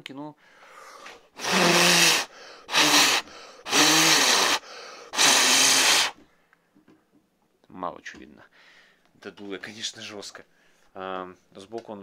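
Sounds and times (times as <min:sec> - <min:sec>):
person blowing into microphone: 0:00.8 - 0:06.2.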